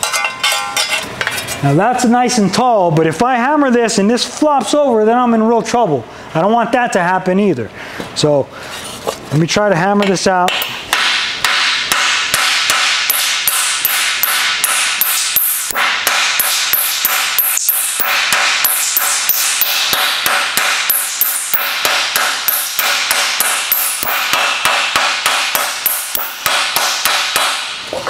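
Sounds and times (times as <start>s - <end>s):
mallet hammering sheet steel: 0.0s - 1.4s, 10.0s - 27.9s.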